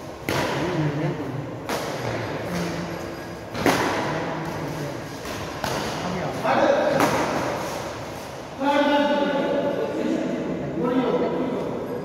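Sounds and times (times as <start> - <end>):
racket hitting shuttlecock: 0.0 - 0.8, 1.6 - 2.8, 3.4 - 6.1, 6.8 - 8.0.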